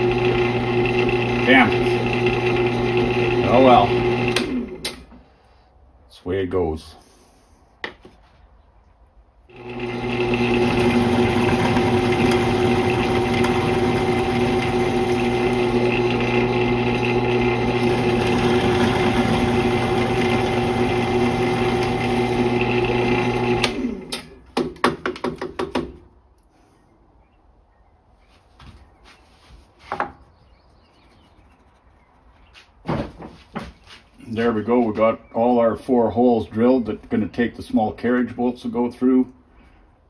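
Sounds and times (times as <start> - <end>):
electric drill humming: 0.0 - 4.9, 9.5 - 24.4.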